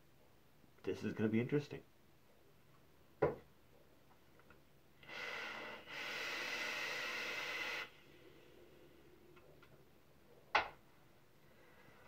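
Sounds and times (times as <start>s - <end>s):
vape hiss: 5.0s - 8.6s.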